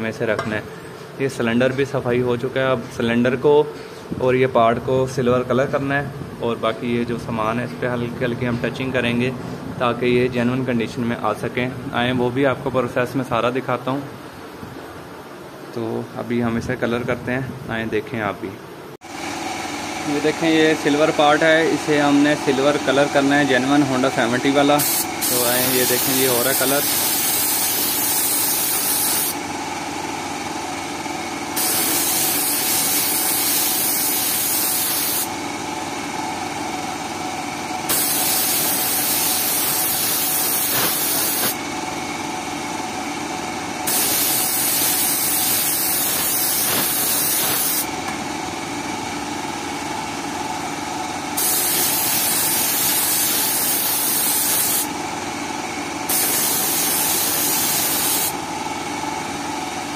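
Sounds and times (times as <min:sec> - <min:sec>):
steady motor hum: 0:18.7 - 0:59.9
spray gun hissing: 0:24.7 - 0:29.4, 0:31.6 - 0:35.3, 0:37.9 - 0:41.6, 0:43.9 - 0:47.9, 0:51.4 - 0:54.9, 0:56.1 - 0:58.4.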